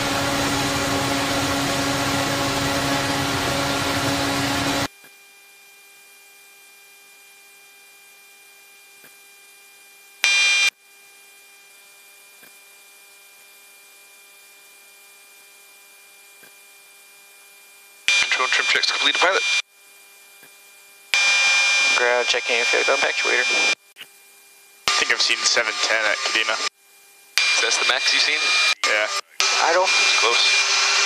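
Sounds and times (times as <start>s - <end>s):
loud high beep: 10.2s - 10.7s, 18.1s - 19.6s.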